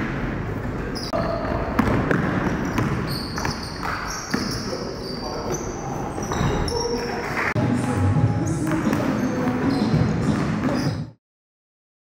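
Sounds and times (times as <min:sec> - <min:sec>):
shoe squeaks: 0:00.9 - 0:01.8, 0:02.5 - 0:07.2, 0:08.4 - 0:11.2.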